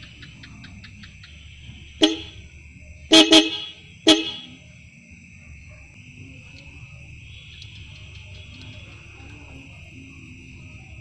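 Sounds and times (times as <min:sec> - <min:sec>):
motorcycle horn beeps: 0:01.5 - 0:02.5, 0:03.1 - 0:04.6.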